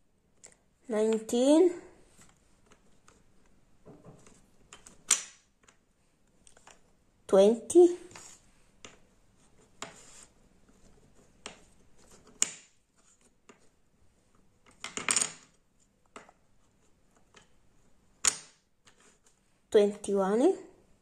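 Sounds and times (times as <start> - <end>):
wooden puzzle pieces clacking: 2.2 - 5.8, 6.4 - 6.9, 9.8 - 13.8, 14.6 - 19.3.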